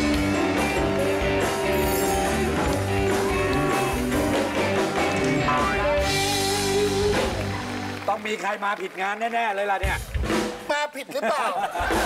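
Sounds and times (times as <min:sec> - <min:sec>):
music with steady bass beat: 0:00.0 - 0:07.7.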